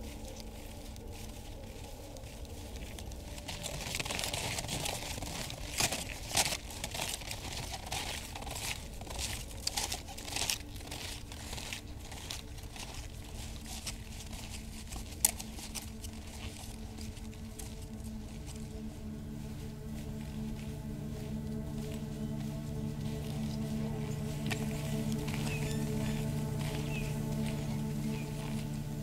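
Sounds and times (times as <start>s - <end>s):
snowshoe steps crunching snow: 0.0s - 29.0s.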